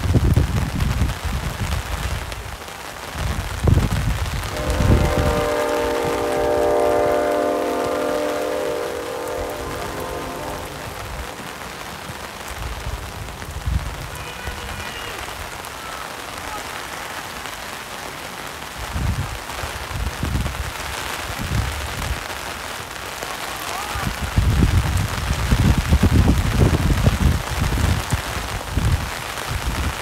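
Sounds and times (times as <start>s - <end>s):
rain hissing: 0.0s - 30.0s
low rumbles on microphone: 3.3s - 7.2s
distant shouts: 4.5s - 11.5s, 14.0s - 17.2s, 23.3s - 24.2s.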